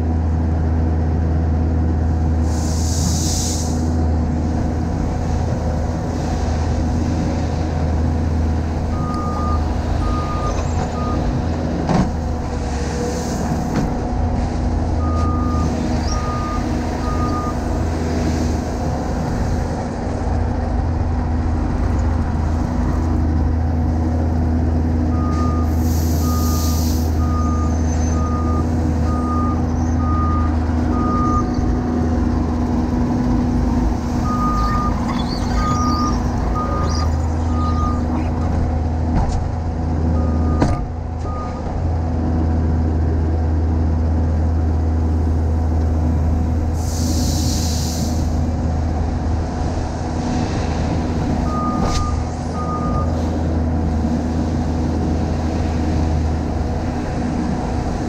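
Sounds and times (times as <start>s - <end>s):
diesel engine running: 0.0s - 58.0s
short hisses: 2.5s - 4.0s, 25.8s - 27.2s, 46.8s - 48.4s
backup alarm beeping: 8.9s - 11.3s, 34.2s - 38.1s.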